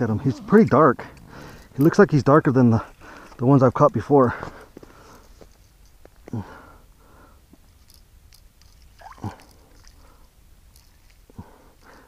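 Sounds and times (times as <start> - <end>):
man sniffing and breathing: 1.2 - 1.8, 4.4 - 5.4, 11.3 - 12.0.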